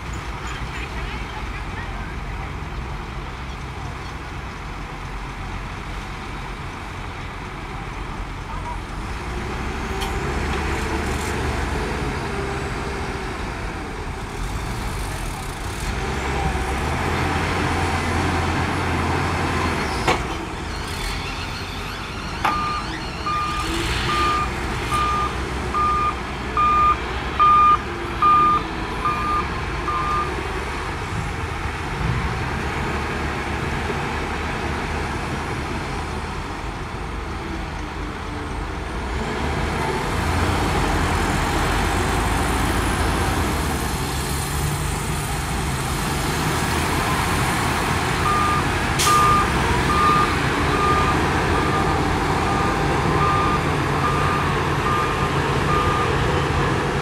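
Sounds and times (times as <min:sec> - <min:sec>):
bulldozer diesel engine: 0:00.0 - 0:57.0
reversing alarm beeping: 0:21.3 - 0:30.3, 0:48.2 - 0:56.2.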